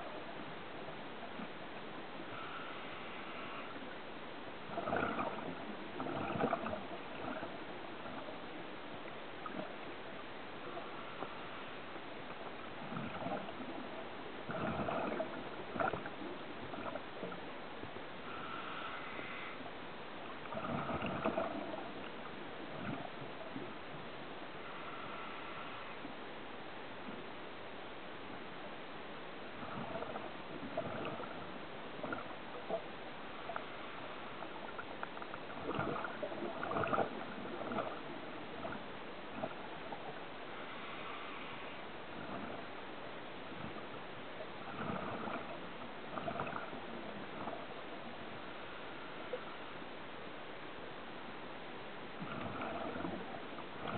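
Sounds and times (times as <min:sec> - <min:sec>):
steady hiss: 0:00.0 - 0:06.0, 0:06.7 - 0:14.4, 0:15.3 - 0:53.9
underwater hiss: 0:02.3 - 0:03.8, 0:18.2 - 0:19.7, 0:24.6 - 0:26.1, 0:39.4 - 0:42.5
underwater exhaled air bubbles: 0:04.6 - 0:17.5, 0:20.3 - 0:24.0, 0:29.4 - 0:42.8, 0:43.4 - 0:49.7, 0:52.2 - 0:53.9
diver exhaling bubbles: 0:04.7 - 0:07.6, 0:14.5 - 0:17.0, 0:20.5 - 0:21.9, 0:29.6 - 0:32.3, 0:35.5 - 0:38.8, 0:44.7 - 0:47.6, 0:52.2 - 0:53.9.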